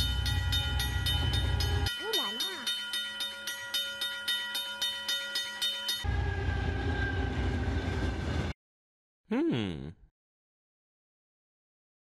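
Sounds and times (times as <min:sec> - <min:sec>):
passing train rumble: 0:00.0 - 0:02.0, 0:05.3 - 0:08.6
railroad crossing bell ringing: 0:00.0 - 0:06.2.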